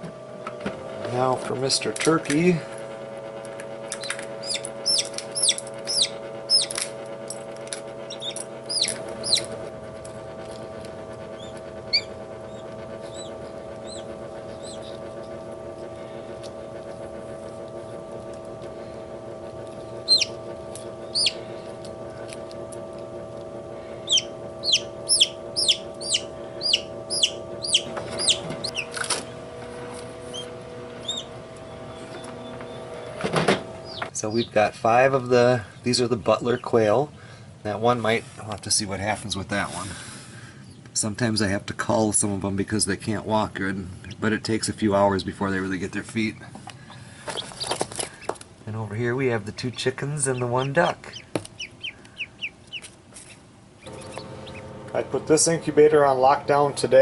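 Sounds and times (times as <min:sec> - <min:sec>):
incubator hum: 0:00.0 - 0:57.0
chicks peeping: 0:04.0 - 0:06.8, 0:08.0 - 0:09.6, 0:11.3 - 0:18.0, 0:19.2 - 0:22.5, 0:24.0 - 0:29.4, 0:30.3 - 0:31.3, 0:33.8 - 0:34.6, 0:47.2 - 0:48.4, 0:49.6 - 0:55.3.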